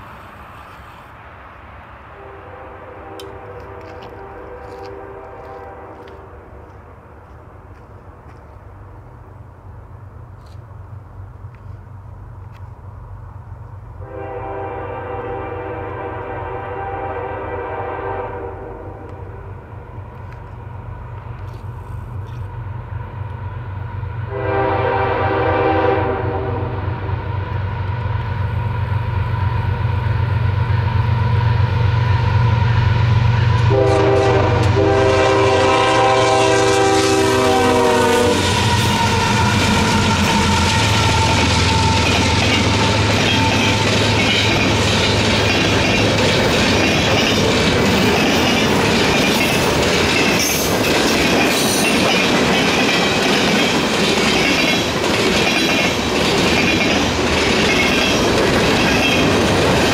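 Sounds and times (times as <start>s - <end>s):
diesel locomotive rumble: 0.0s - 59.9s
wheels rushing on rail: 0.0s - 59.9s
locomotive air horn blasts: 2.1s - 6.5s, 14.0s - 19.5s, 24.3s - 27.1s, 33.6s - 44.0s.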